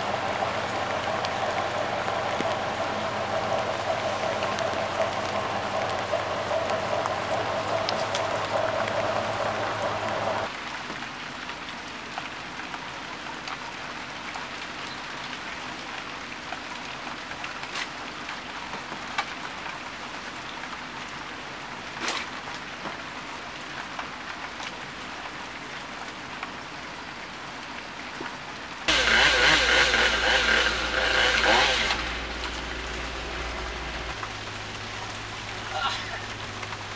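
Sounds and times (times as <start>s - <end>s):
loud steady hum: 0.0s - 10.5s, 28.9s - 36.9s
steady rain falling: 0.0s - 36.9s.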